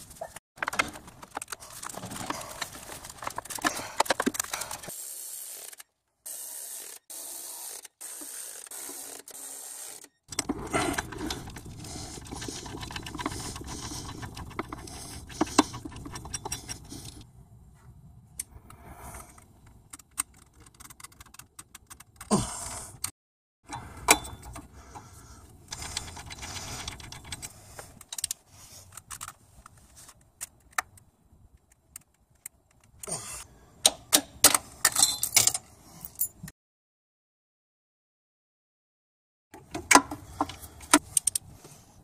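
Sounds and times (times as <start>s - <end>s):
metal clicking and rattling: 10.3s - 17.2s, 19.6s - 22.3s, 25.7s - 29.4s.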